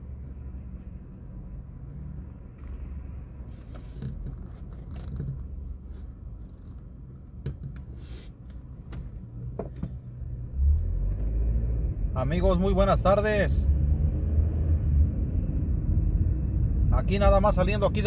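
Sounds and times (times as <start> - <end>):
small clicks and scrapes: 3.4 - 10.0.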